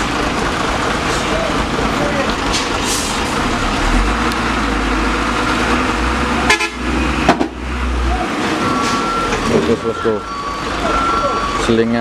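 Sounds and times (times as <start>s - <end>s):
diesel truck engines rumbling: 0.0s - 12.0s
truck horn toot: 6.4s - 7.1s.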